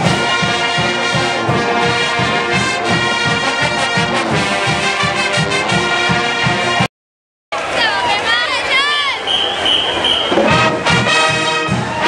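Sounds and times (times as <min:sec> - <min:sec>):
brass chords: 0:00.0 - 0:06.9, 0:09.0 - 0:12.0
steady drum beat: 0:09.4 - 0:12.0.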